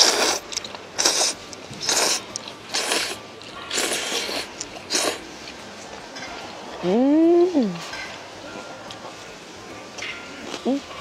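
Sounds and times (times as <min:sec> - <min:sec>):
person slurping noodles: 0:00.0 - 0:05.2.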